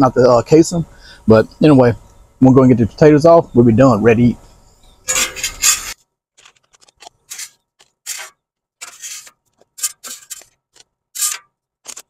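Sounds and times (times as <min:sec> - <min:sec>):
metal spatula scraping griddle: 0:05.1 - 0:06.0, 0:07.3 - 0:10.6, 0:11.2 - 0:12.0.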